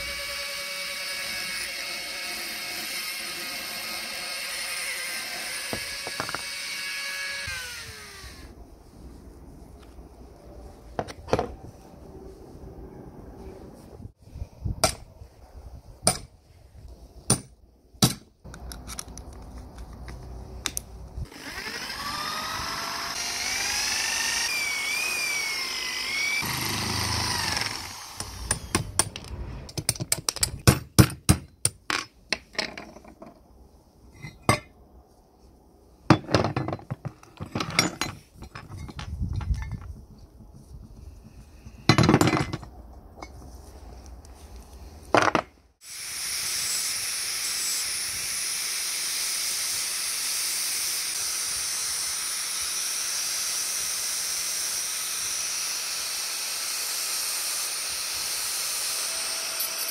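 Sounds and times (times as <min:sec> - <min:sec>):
cordless drill drilling into metal: 0:21.3 - 0:28.8.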